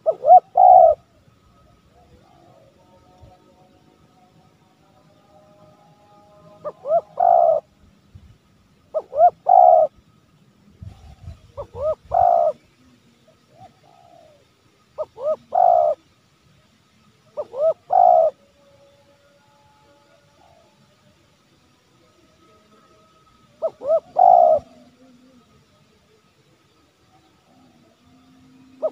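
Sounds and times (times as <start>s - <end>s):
dove cooing: 0.0s - 1.2s, 6.4s - 7.7s, 8.9s - 10.0s, 10.8s - 12.6s, 13.3s - 16.0s, 17.2s - 18.4s, 23.6s - 25.4s, 28.5s - 28.9s.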